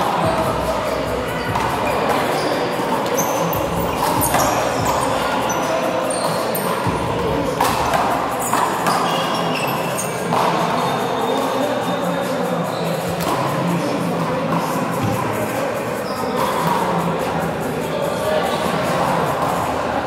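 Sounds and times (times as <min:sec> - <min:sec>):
sneakers squeaking on court floor: 0:00.2 - 0:12.1, 0:12.7 - 0:13.6, 0:16.0 - 0:16.9.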